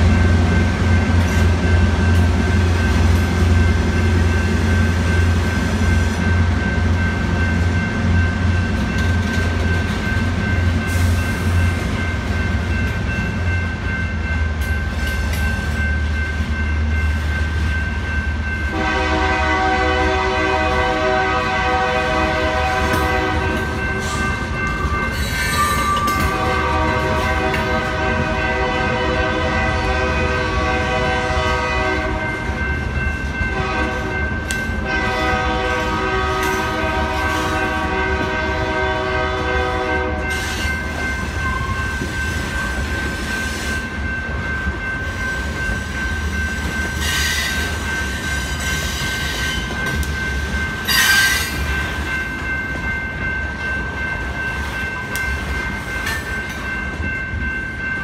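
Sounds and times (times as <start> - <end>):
crossing bell ringing: 0.0 - 58.0
freight train rumbling: 0.0 - 58.0
train horn: 18.7 - 24.2, 25.6 - 32.3, 33.5 - 34.2, 34.8 - 40.4.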